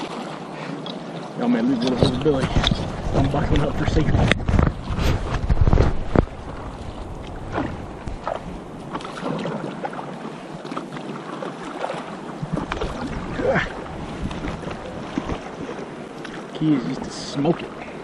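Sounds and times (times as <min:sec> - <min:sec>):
paddle splashing: 0:00.0 - 0:18.0
river water slapping paddleboard: 0:00.0 - 0:18.0
wind rumble on microphone: 0:01.8 - 0:09.9, 0:12.3 - 0:15.8.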